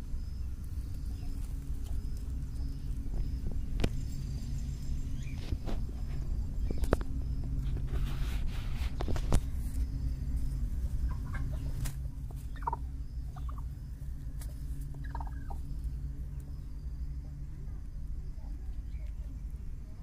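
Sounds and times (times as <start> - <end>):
steady low hum: 0.0 - 20.0
hen clucking: 5.1 - 16.5.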